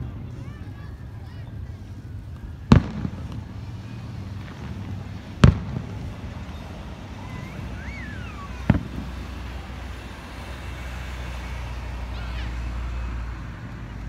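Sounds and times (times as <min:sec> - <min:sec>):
distant firework bursts: 0:00.0 - 0:13.3
faint rising whistle: 0:06.5 - 0:08.7.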